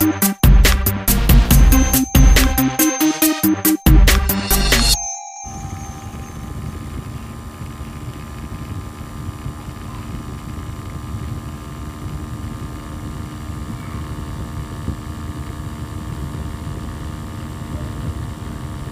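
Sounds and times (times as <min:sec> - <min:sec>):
small electric motor whine: 0:06.4 - 0:18.9.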